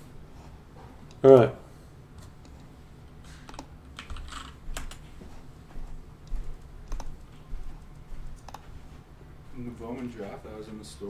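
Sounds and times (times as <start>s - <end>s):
computer keyboard typing: 3.5s - 5.0s, 6.8s - 7.3s, 8.4s - 8.7s.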